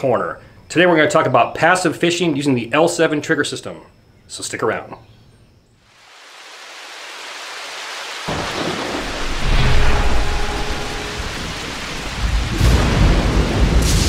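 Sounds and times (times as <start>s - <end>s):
hiss of rain: 5.8s - 14.0s
deep rumbles of thunder: 8.3s - 14.0s.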